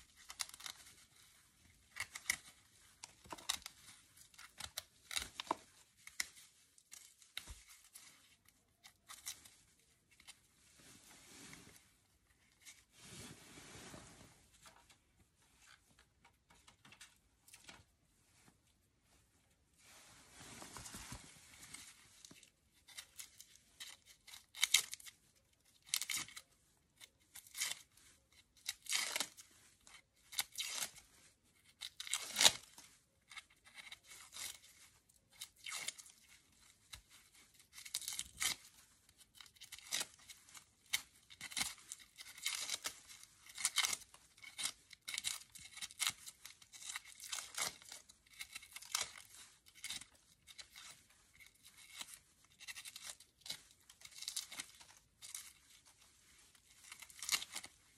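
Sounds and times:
knife scraping dry bulb skins: 0:00.0 - 0:01.2, 0:01.8 - 0:09.4, 0:35.4 - 0:56.0, 0:56.6 - 0:57.7.

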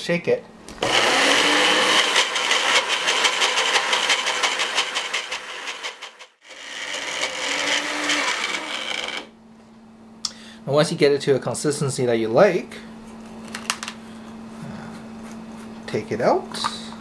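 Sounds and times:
blender motor churning: 0:00.8 - 0:09.3.

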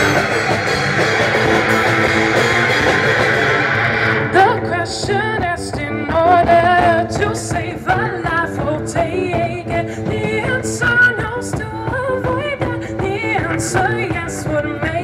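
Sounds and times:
cymbals ticking: 0:00.0 - 0:05.2
live band playing: 0:00.0 - 0:15.0
woman singing: 0:04.3 - 0:15.0.

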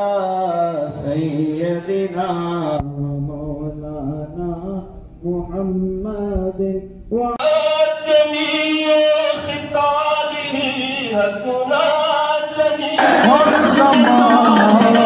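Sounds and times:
men singing a chant in chorus: 0:07.4 - 0:15.0.

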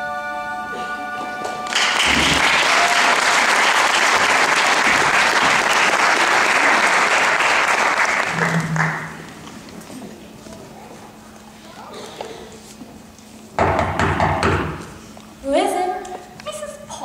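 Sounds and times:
held music chord: 0:00.0 - 0:02.2
audience applause: 0:01.4 - 0:09.6.

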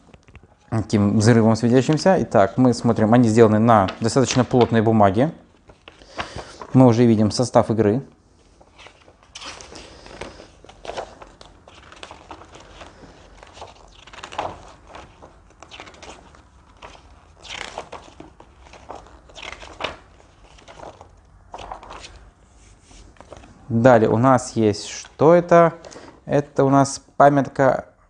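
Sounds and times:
thick paper rustling and crinkling: 0:01.8 - 0:04.9, 0:05.6 - 0:06.9, 0:08.5 - 0:23.6.

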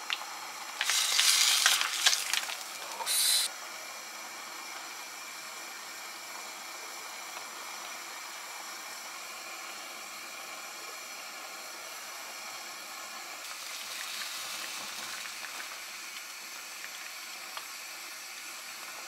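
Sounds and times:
stew hissing in a pot: 0:00.3 - 0:19.0.

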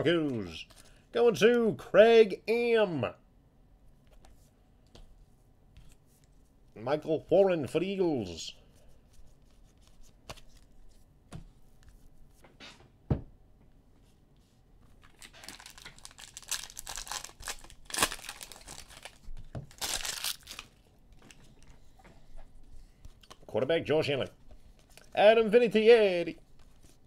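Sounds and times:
wrapper tearing and crinkling: 0:15.1 - 0:20.9.

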